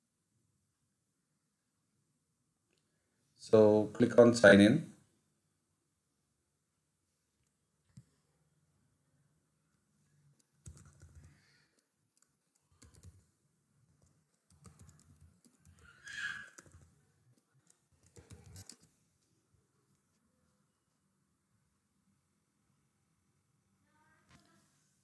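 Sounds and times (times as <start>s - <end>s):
computer keyboard typing: 10.4s - 11.4s, 12.1s - 13.3s, 13.9s - 18.9s.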